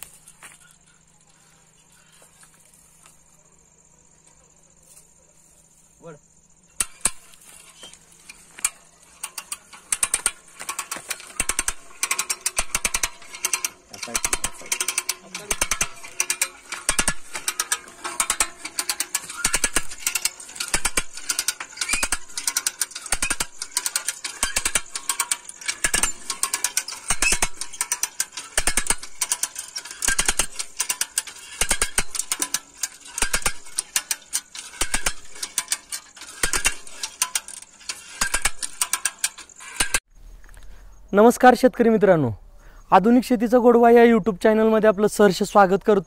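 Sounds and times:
ratchet pawl clicking: 8.5s - 40.0s.

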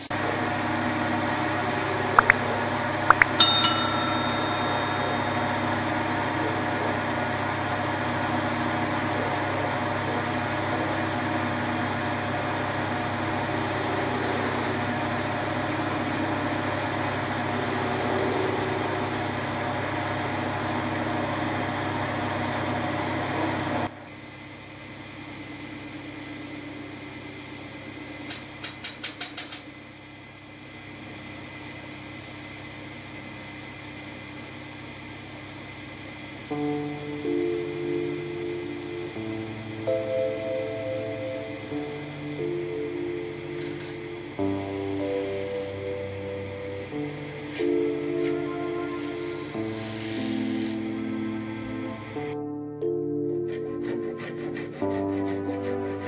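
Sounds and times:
metallic clink: 3.4s - 5.4s
sanding pad on spinning wood: 49.0s - 51.2s, 53.6s - 56.0s.

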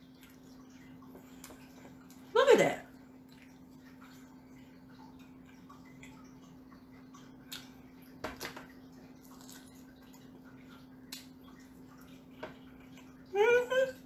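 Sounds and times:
wet mouth eating sounds: 7.4s - 7.8s.

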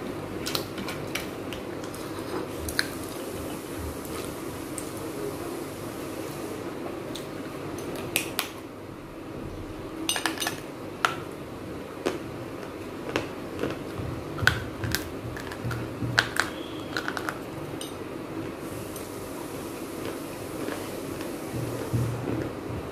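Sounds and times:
low background hum: 0.0s - 22.9s
clay pots crunching: 12.0s - 17.9s.

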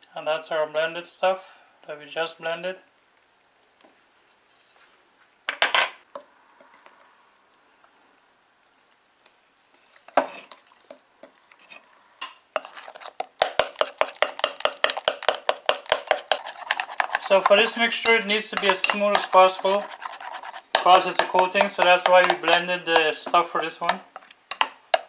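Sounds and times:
spoon clinking against glass bowl: 15.9s - 23.6s, 24.2s - 25.0s.

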